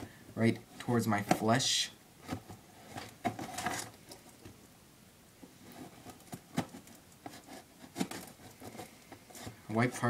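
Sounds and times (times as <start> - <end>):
knife scratching cardboard box: 5.8 - 9.6.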